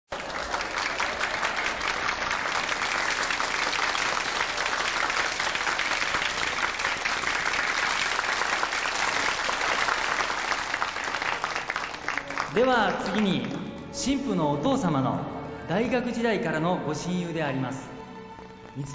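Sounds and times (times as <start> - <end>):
crowd applauding: 0.1 - 13.8.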